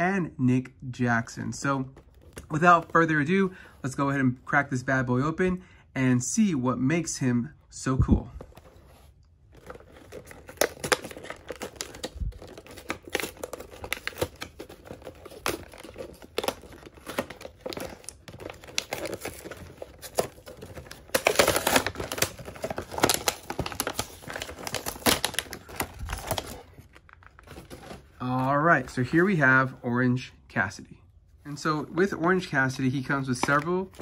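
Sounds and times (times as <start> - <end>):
packaging crinkling and clicking: 9.5 - 28.1.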